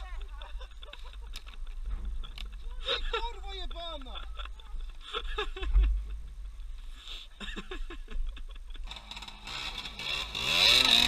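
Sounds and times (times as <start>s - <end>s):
dirt bike engine running: 8.8s - 11.0s.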